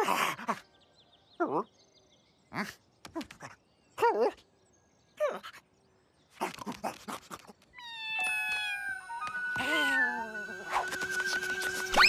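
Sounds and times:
music: 8.2s - 12.0s.

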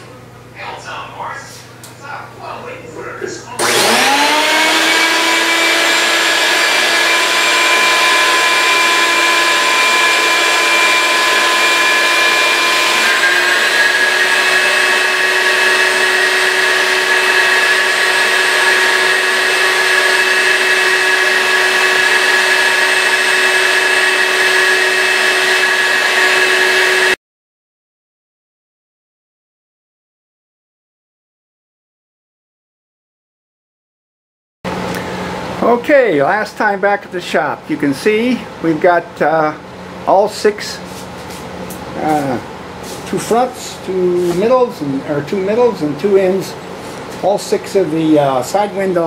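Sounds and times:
vacuum motor whining: 3.5s - 27.2s.

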